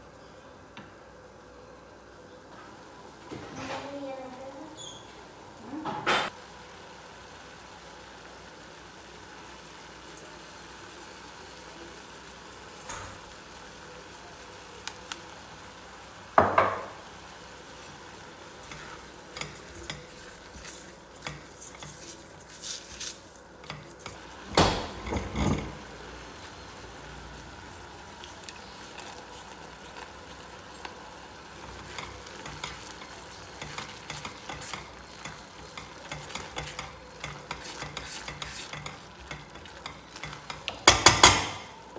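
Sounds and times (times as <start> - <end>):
spatula scraping saucepan: 18.6 - 24.2, 31.6 - 41.6.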